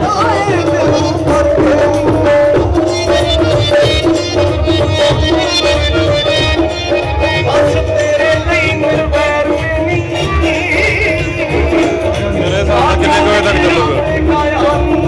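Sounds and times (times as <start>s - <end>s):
live music over sound system: 0.0s - 15.0s
steady drum beat: 0.0s - 15.0s
sustained instrument tones: 11.5s - 14.8s.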